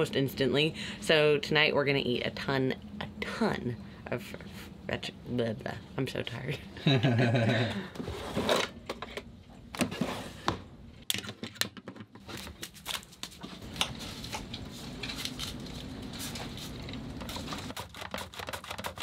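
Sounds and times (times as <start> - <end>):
drawer sliding open: 8.0 - 8.8.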